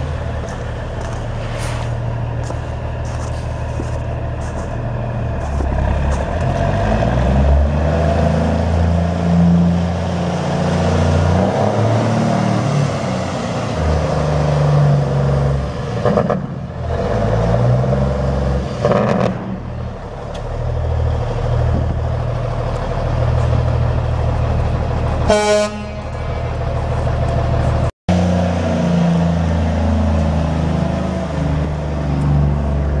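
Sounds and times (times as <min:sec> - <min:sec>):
diesel truck engine running: 0:00.0 - 0:18.6, 0:19.3 - 0:33.0
truck horn blast: 0:25.2 - 0:26.5.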